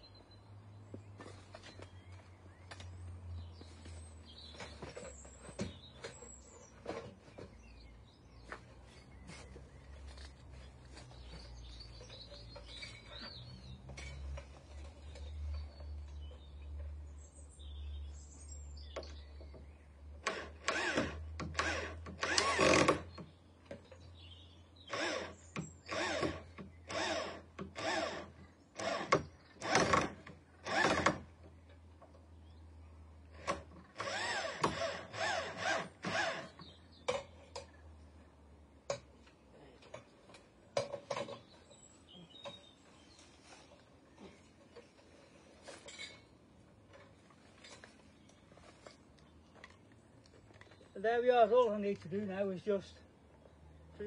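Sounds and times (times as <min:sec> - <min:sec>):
power drill driving screws: 0:20.2 - 0:23.1, 0:24.9 - 0:31.3, 0:33.4 - 0:36.6.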